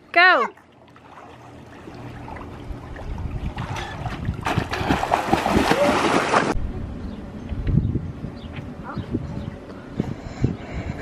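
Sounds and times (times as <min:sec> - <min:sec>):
pool water splashing: 0:00.2 - 0:06.6.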